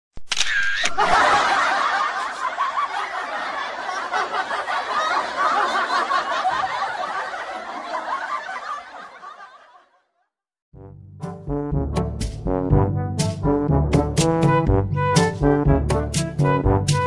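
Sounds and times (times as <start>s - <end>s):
group of people laughing: 0.8s - 10.2s.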